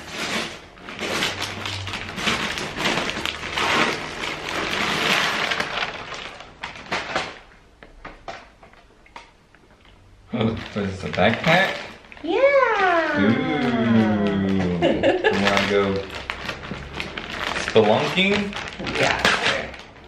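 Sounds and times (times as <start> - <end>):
wrapping paper tearing and crumpling: 0.0 - 7.5, 10.3 - 20.0
plastic bag rustling: 0.0 - 7.6, 10.3 - 20.0.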